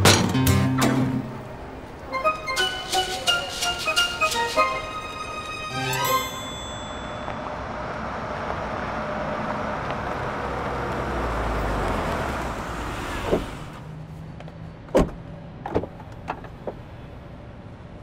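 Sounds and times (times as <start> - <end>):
car driving up and stopping: 6.7 - 14.3.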